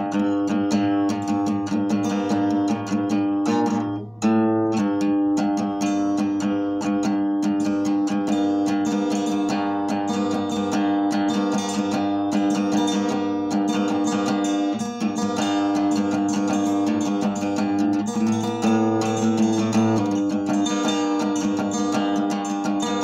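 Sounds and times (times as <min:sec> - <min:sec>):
acoustic guitar picking: 0:00.0 - 0:23.0.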